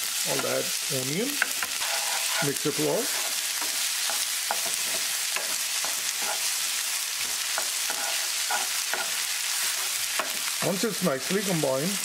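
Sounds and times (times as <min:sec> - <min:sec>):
onion sizzling in hot oil: 0:00.0 - 0:12.0
wooden spatula scraping pan: 0:01.4 - 0:06.6, 0:07.2 - 0:10.4.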